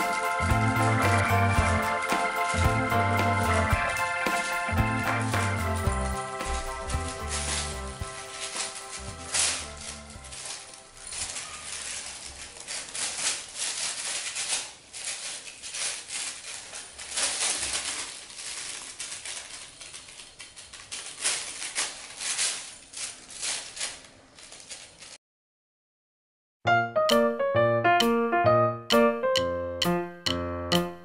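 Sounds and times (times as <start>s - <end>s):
plastic sheet crinkling: 0.0s - 25.2s.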